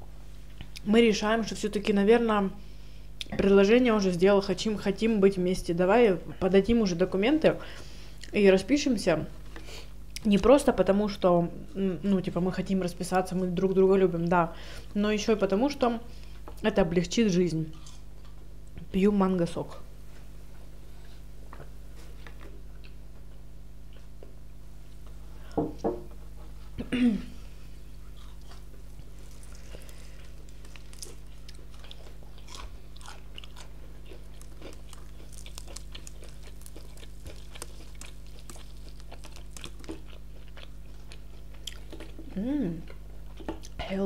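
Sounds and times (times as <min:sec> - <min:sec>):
crunchy chewing of fried chicken: 0:17.7 - 0:18.6, 0:27.6 - 0:43.8.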